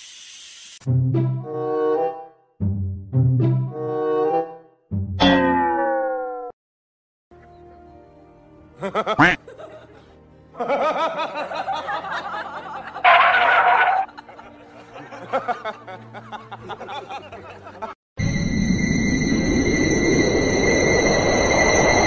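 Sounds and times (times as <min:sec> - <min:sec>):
background music: 0:00.9 - 0:05.2, 0:07.3 - 0:18.0
person snickering and laughing: 0:08.8 - 0:10.0.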